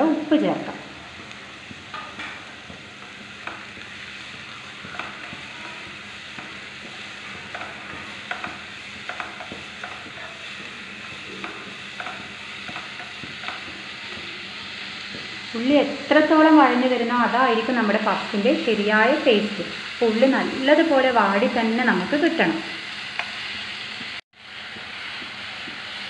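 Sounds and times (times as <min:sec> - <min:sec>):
onions sizzling in oil: 0:00.0 - 0:26.0
spoon scraping and tapping pan: 0:01.1 - 0:15.5, 0:23.1 - 0:24.1.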